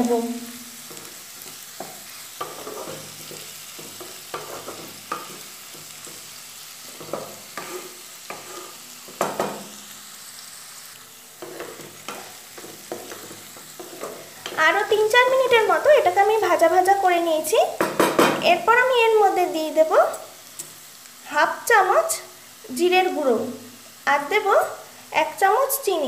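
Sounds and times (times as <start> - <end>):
vegetables sizzling in oil: 0.0 - 26.0
spatula scraping and knocking: 0.9 - 6.2, 6.9 - 9.6, 11.4 - 14.6.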